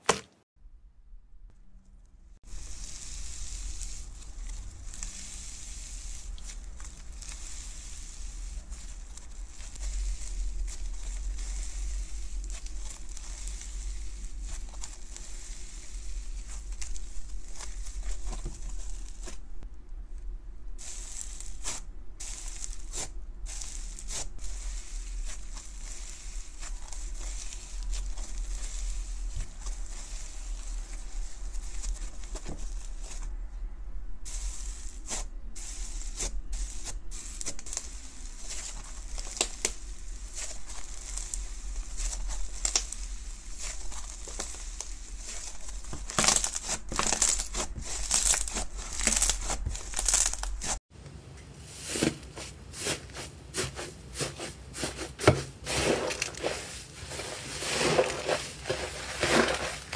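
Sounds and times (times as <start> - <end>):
low steady hum: 0.6 - 45.8
slime crackling and popping: 2.5 - 19.4, 20.9 - 33.2, 34.4 - 50.8.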